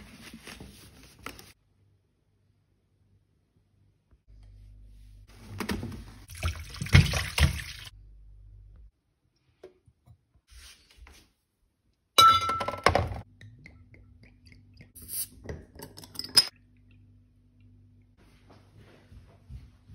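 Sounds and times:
glass bottle clink ringing: 0:12.2 - 0:13.0
glass containers clinking: 0:12.2 - 0:13.2, 0:15.5 - 0:16.6.

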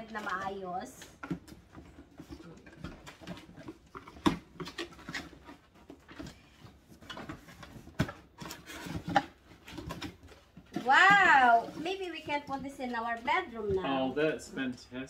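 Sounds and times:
cardboard flaps rustling and scraping: 0:02.1 - 0:12.6.

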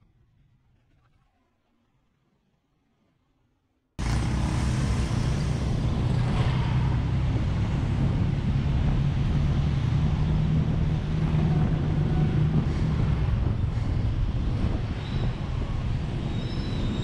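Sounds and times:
road noise: 0:04.0 - 0:17.0
vehicle engine humming: 0:04.0 - 0:17.0
wind buffeting microphone: 0:04.0 - 0:17.0.

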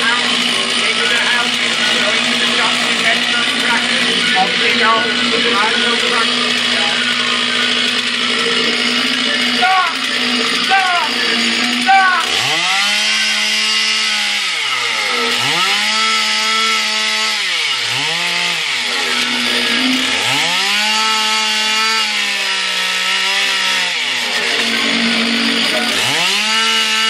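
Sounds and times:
chainsaw revving: 0:00.0 - 0:27.0.

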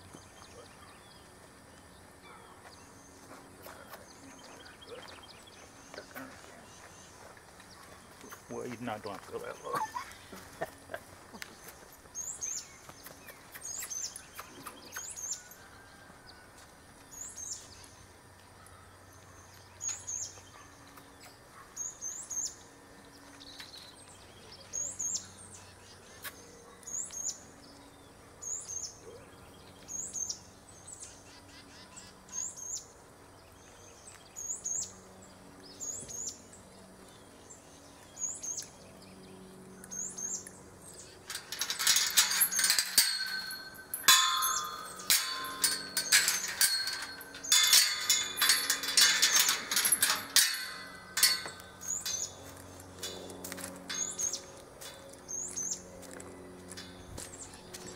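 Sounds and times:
small bird chirping: 0:11.5 - 0:15.5.

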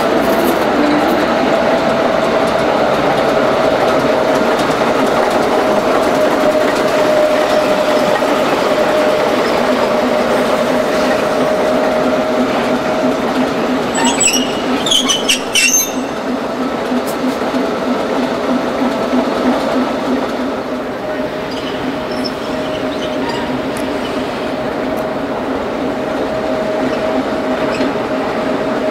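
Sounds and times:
diesel locomotive engine throbbing: 0:00.0 - 0:28.9
high-pitched wheel squeals: 0:13.8 - 0:16.3, 0:21.5 - 0:24.3.

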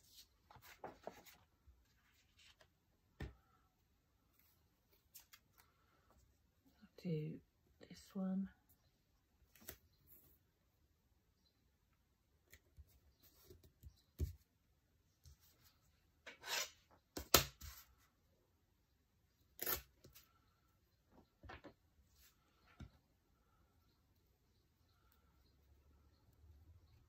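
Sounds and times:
paper rustling and scraping: 0:00.0 - 0:02.7.

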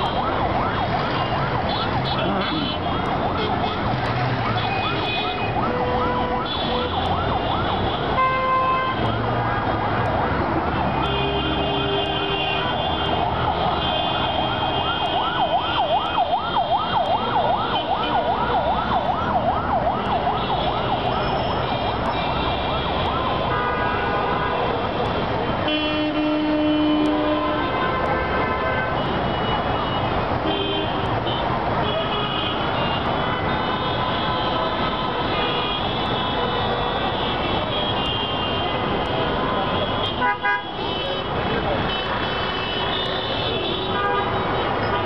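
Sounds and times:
warbling siren: 0:00.0 - 0:08.2, 0:13.0 - 0:23.5
vehicle horns honking: 0:07.8 - 0:09.8, 0:10.8 - 0:15.1, 0:20.5 - 0:25.0, 0:25.6 - 0:45.0.

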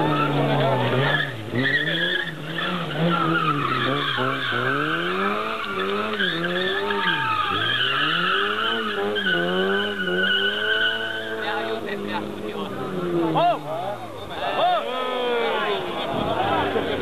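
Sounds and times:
tyres squealing: 0:00.0 - 0:11.9
car engine revving: 0:00.0 - 0:14.4.

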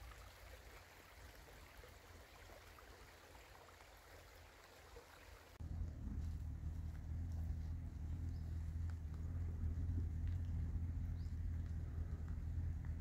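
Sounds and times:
muffled low rumble: 0:05.6 - 0:13.0.

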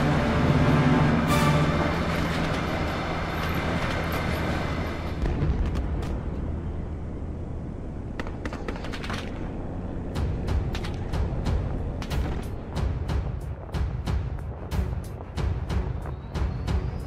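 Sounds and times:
train wheels rolling on rails: 0:00.0 - 0:06.7
steady low rumble: 0:00.0 - 0:17.0.

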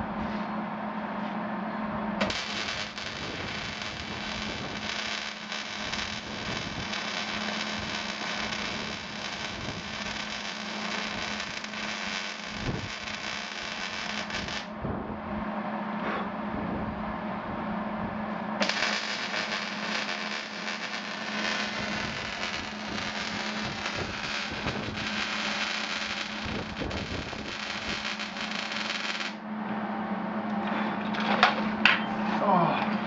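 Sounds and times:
low hum: 0:00.0 - 0:32.4
arc welding crackling hiss: 0:02.2 - 0:14.7, 0:18.6 - 0:29.4.

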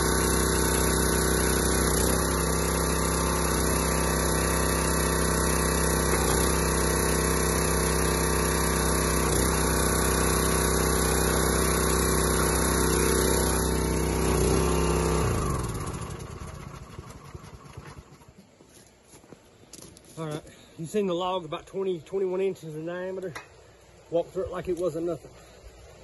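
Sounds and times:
hydraulic ram splitting log: 0:00.0 - 0:18.3
small gas engine running: 0:00.0 - 0:18.6.

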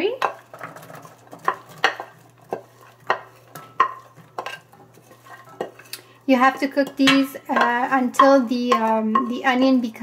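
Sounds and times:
wooden spoon scraping vegetables into pan: 0:00.2 - 0:07.8.

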